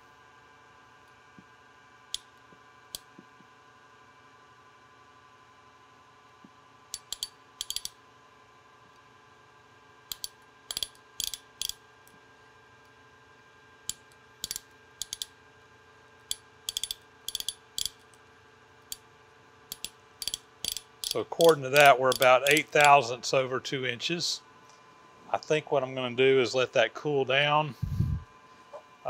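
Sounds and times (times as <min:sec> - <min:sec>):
faint machine hum: 0:00.0 - 0:29.0
micrometer ratchet clicking: 0:06.9 - 0:08.0, 0:10.1 - 0:11.8, 0:13.9 - 0:15.3, 0:16.3 - 0:18.2, 0:19.7 - 0:23.0.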